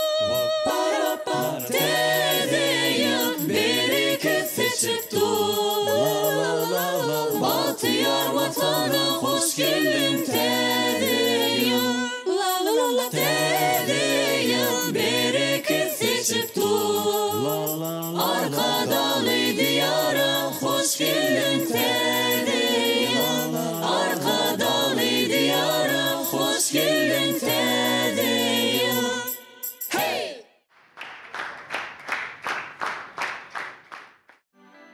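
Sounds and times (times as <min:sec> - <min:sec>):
choir singing in harmony: 0:00.2 - 0:30.4
audience clapping: 0:30.8 - 0:34.4.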